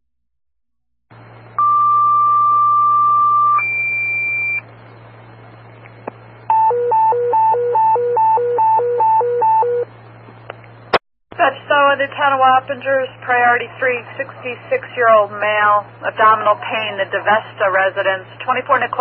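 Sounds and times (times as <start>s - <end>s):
two-tone pager tones: 1.6s - 4.6s, 6.5s - 9.9s
radio hiss: 11.4s - 19.0s.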